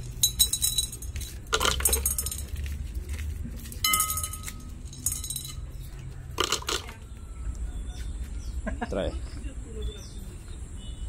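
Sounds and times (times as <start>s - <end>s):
candies rattling into plastic bottle: 0.0s - 5.6s, 6.4s - 6.9s.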